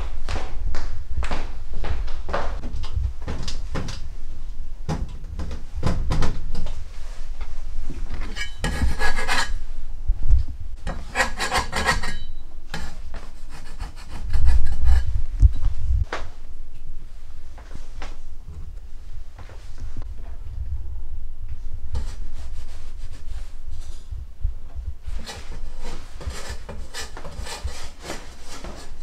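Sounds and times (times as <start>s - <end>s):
dough rubbing on wooden board: 8.6s - 9.5s, 10.9s - 12.2s, 12.8s - 15.1s, 25.1s - 29.0s.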